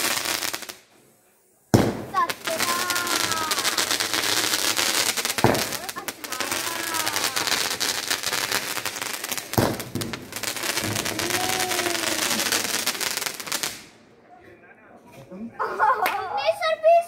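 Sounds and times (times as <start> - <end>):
firecracker bang: 0.0 - 0.9, 1.7 - 14.0
firework fountain hissing crackle: 0.0 - 14.1.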